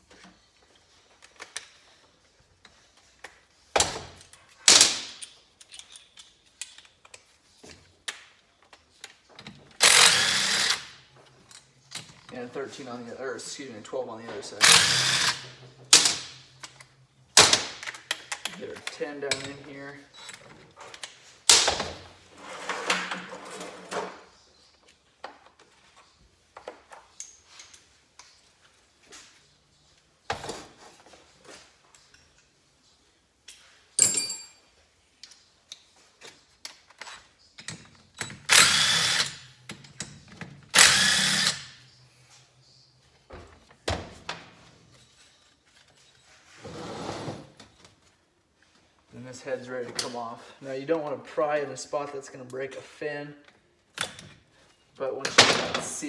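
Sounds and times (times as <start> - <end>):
bolts and tools clinking: 2.6 - 12.6, 14.6 - 21.8, 33.4 - 41.5.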